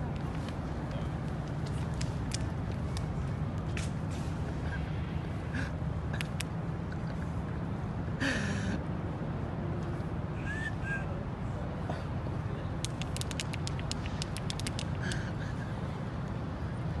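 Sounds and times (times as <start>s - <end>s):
low city rumble: 0.0s - 17.0s
quick sharp clicks: 12.8s - 15.3s.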